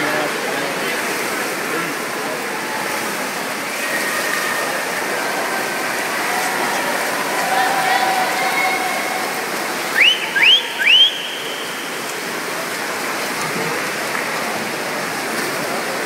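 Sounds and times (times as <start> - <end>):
swimmers splashing: 0.0 - 16.0.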